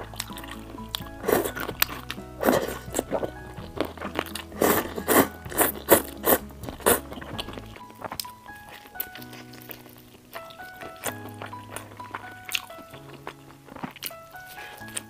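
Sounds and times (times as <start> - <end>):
background music: 0.0 - 15.0
person slurping noodles: 1.2 - 3.3, 4.1 - 7.6.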